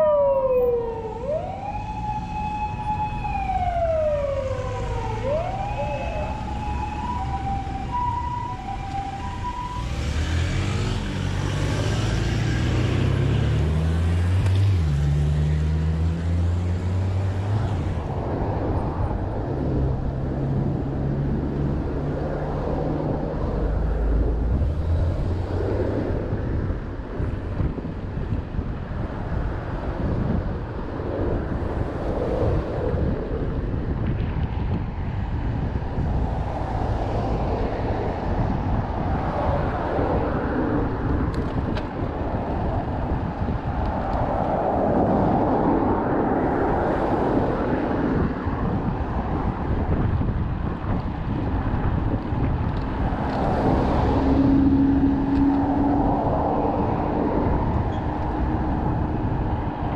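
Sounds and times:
two-note hi-lo siren tone: 0.0 - 10.0
emergency siren wailing: 0.0 - 10.9
heavy vehicle engines droning: 0.0 - 59.9
road traffic: 0.0 - 59.9.

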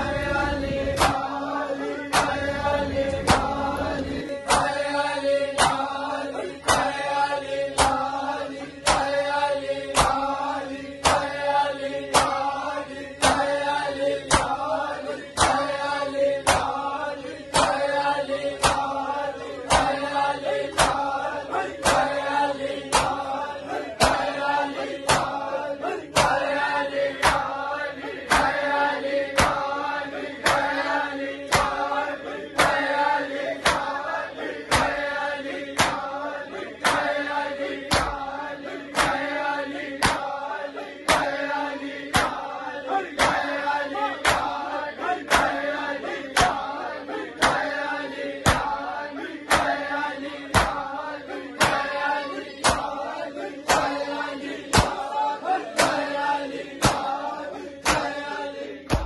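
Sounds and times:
men chanting in unison: 0.0 - 59.0.

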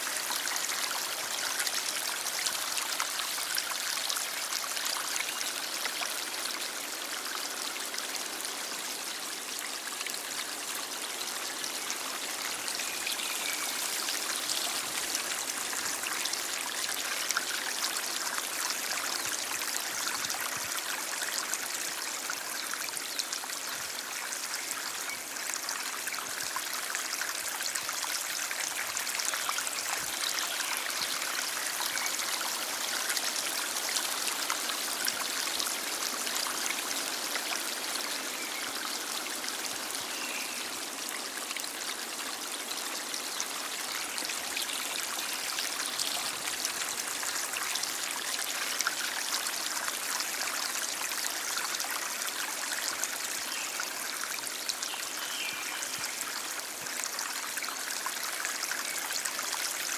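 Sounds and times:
stream flowing: 0.0 - 59.9.

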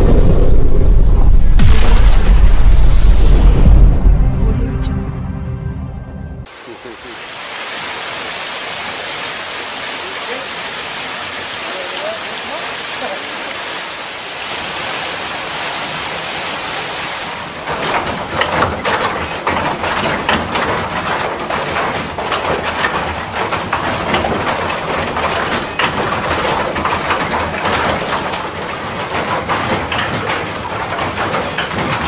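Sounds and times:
water rushing off waterwheel: 6.5 - 32.0
sawmill machinery clattering: 16.1 - 32.0.

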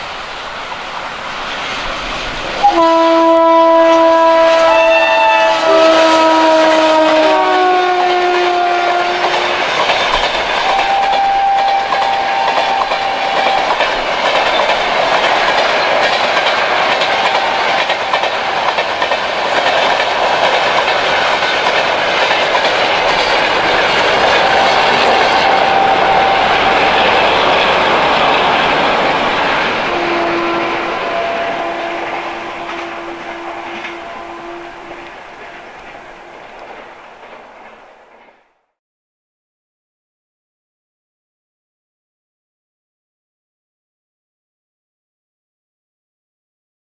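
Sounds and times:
train wheels clattering over rail joints: 9.2 - 38.4
brief steady tones: 10.6 - 14.0, 23.2 - 36.2.

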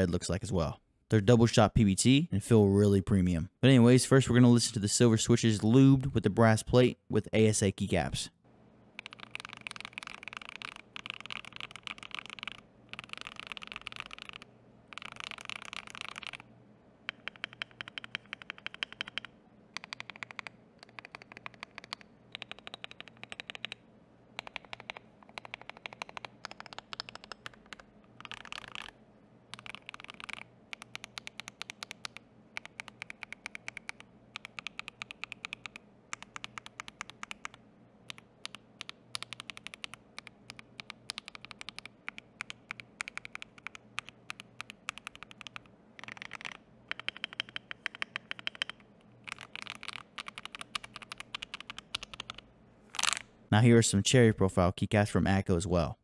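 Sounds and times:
mechanical keyboard typing: 9.0 - 23.8, 24.4 - 53.2.

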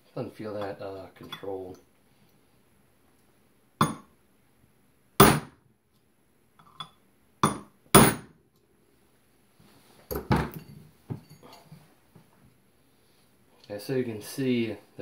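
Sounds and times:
hammer striking metal punch: 3.8 - 4.1, 5.2 - 5.6, 7.4 - 8.3.

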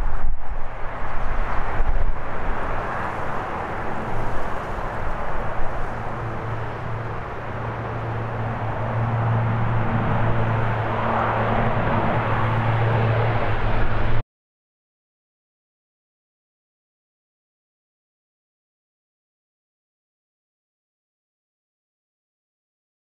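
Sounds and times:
turboprop plane passing overhead: 0.0 - 14.2.

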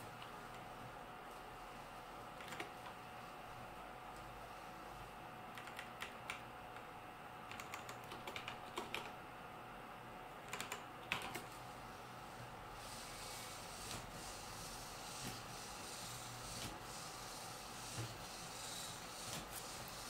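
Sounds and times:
faint steady hum: 0.0 - 20.0
keyboard typing: 2.4 - 2.8, 5.5 - 6.4, 7.5 - 9.1, 10.4 - 11.5.

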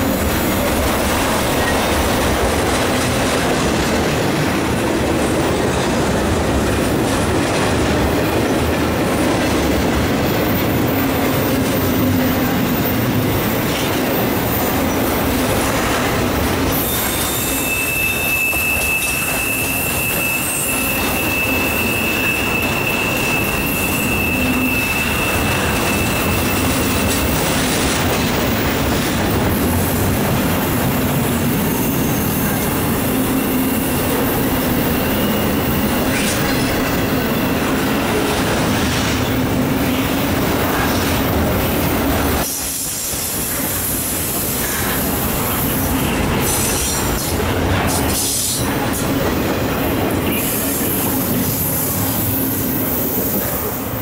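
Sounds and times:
freight train wheels rumbling: 0.0 - 54.0
high wheel squeal: 10.2 - 15.4, 16.7 - 27.6, 31.4 - 38.2.

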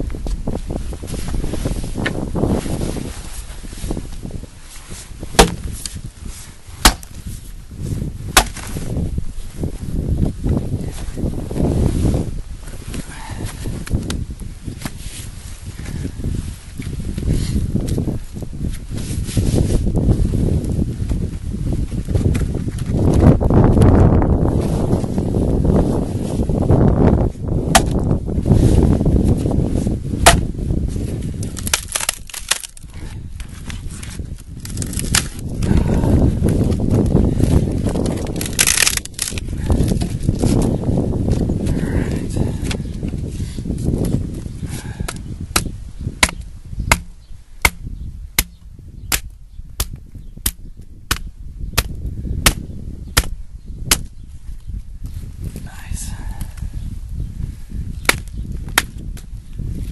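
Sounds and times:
steady low rumble: 0.0 - 59.9
axe striking wood: 5.3 - 5.9, 6.8 - 7.2, 8.3 - 8.7, 27.7 - 28.0, 30.2 - 30.5, 45.1 - 54.1, 58.0 - 59.3
split wood cracking: 5.3 - 6.0, 6.8 - 7.2, 8.3 - 8.8, 27.7 - 28.1, 30.2 - 30.5, 31.4 - 40.7, 45.0 - 54.1, 58.0 - 59.3.

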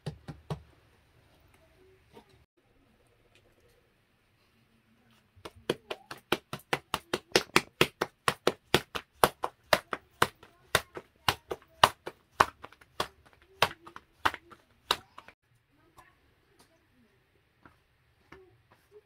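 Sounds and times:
dough slapped between palms: 5.4 - 15.4.

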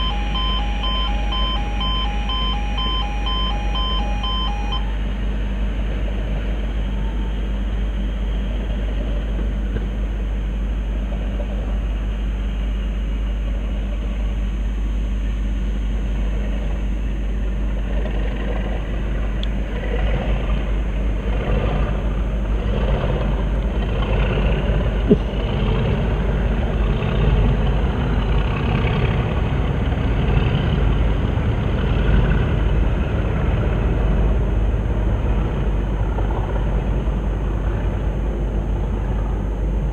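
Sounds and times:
diesel locomotive engines: 0.0 - 39.9.

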